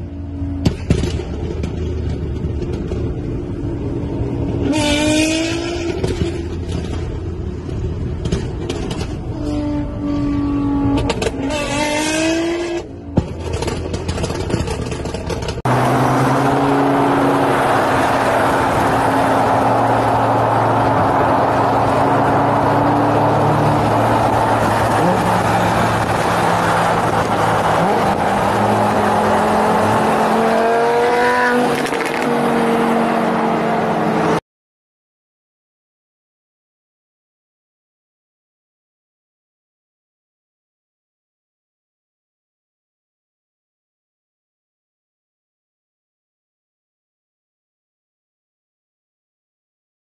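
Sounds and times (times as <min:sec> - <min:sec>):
wind and road noise at speed: 0:00.0 - 0:34.4
car engine revving: 0:10.2 - 0:34.4.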